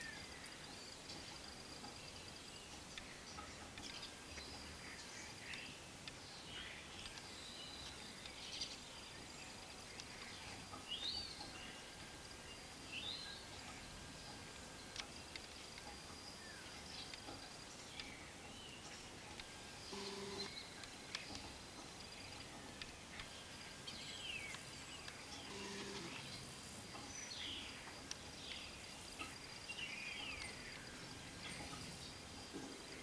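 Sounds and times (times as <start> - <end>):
small birds chirping: 0.0 - 33.0
faint high steady trill: 19.1 - 21.1, 24.6 - 26.9.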